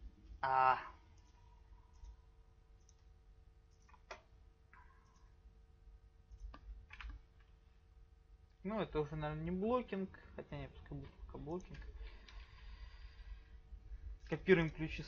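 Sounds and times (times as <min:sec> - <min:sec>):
low room hum: 0:00.0 - 0:15.0
computer mouse clicks: 0:01.1 - 0:02.2, 0:02.8 - 0:03.1, 0:03.7 - 0:05.4, 0:06.3 - 0:07.6.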